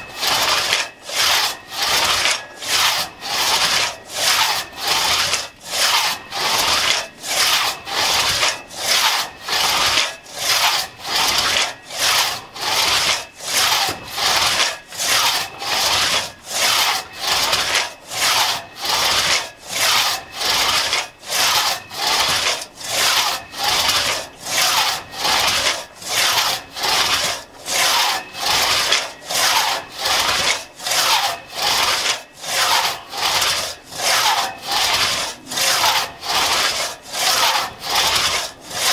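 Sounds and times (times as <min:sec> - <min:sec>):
crosscut saw rasping through log: 0:00.0 - 0:38.9.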